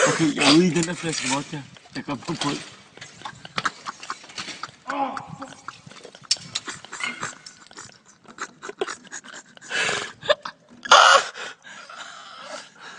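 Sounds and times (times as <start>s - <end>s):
bicycles rattling and clanking: 0.0s - 8.1s
man breathing loudly: 9.6s - 10.2s.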